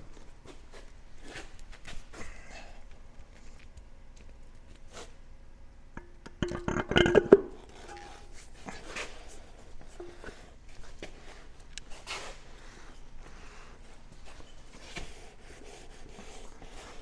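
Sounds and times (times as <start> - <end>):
metal parts knocking and scraping: 6.4 - 8.3
metallic clanks ringing: 6.7 - 8.3
faint metal rubbing: 7.6 - 10.6.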